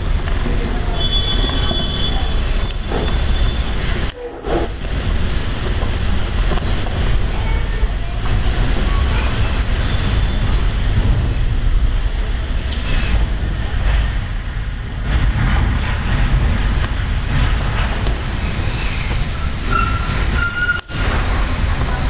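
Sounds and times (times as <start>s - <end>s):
rain hiss: 0.0s - 22.0s
low rumble: 3.7s - 22.0s.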